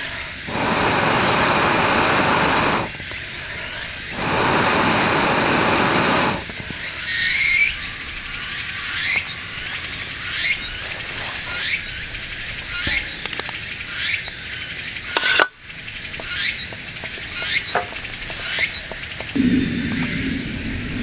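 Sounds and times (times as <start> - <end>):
wood crackling and popping: 10.7 - 14.4, 15.1 - 21.0
low steady rumble: 19.4 - 21.0.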